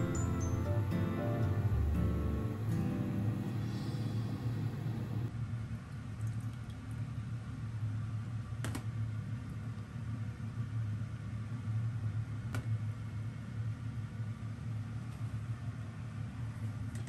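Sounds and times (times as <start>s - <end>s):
steady low hum: 0.0s - 5.5s.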